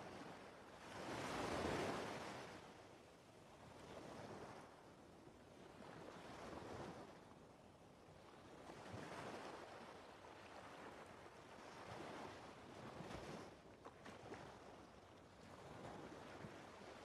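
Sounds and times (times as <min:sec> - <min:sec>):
faint ocean waves: 0:00.0 - 0:17.0.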